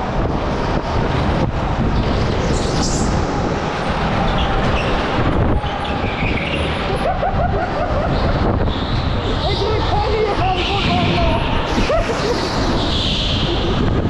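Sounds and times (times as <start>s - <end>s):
go-kart tyres and chassis rumbling: 0.0s - 14.0s
wind buffeting microphone: 0.0s - 14.0s
faint wavering squeal: 2.5s - 7.0s.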